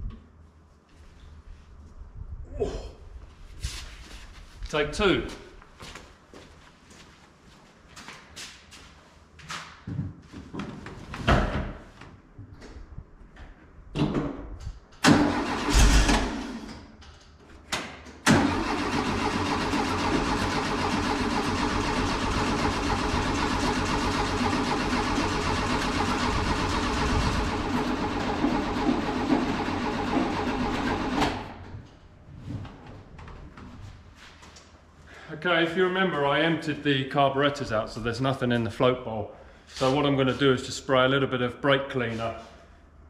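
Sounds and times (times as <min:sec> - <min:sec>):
car engine cranking on starter: 0:15.0 - 0:16.7, 0:18.3 - 0:31.5.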